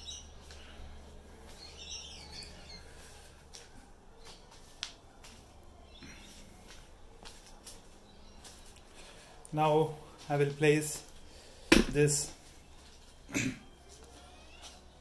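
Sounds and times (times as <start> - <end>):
faint high chirp: 0.0 - 3.3, 12.4 - 15.0.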